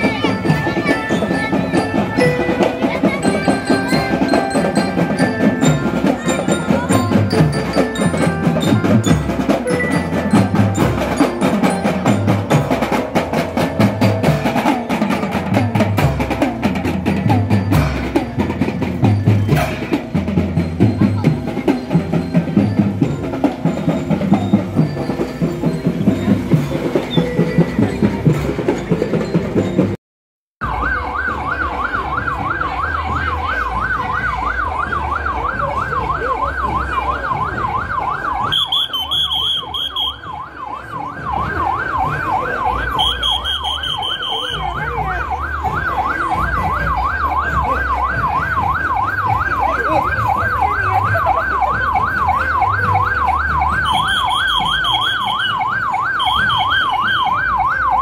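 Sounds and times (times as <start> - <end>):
electronic siren yelp: 30.6 - 58.0
higher steady siren tone: 51.7 - 58.0.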